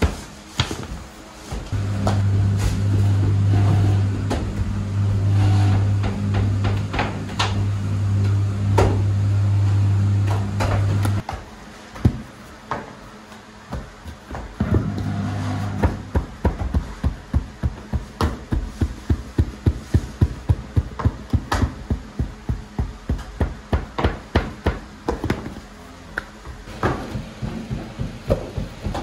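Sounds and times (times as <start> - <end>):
bread stamp thumping dough: 15.8 - 25.6.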